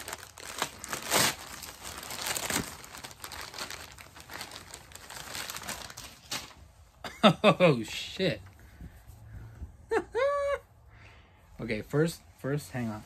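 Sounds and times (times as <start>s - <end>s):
loud rip of packaging: 0.0s - 6.6s
packaging crinkling and tearing: 0.0s - 6.6s.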